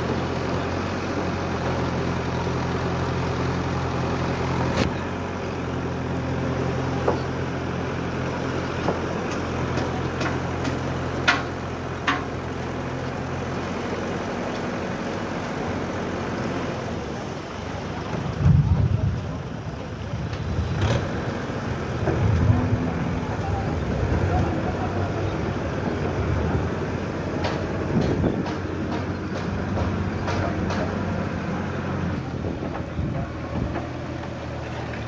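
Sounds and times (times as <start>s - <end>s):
diesel engine running: 0.0s - 35.0s
wind: 0.0s - 35.0s
low rumble: 18.3s - 20.8s.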